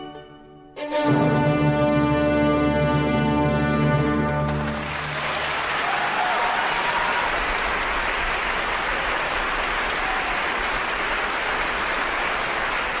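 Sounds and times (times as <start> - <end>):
audience applauding: 4.0 - 13.0.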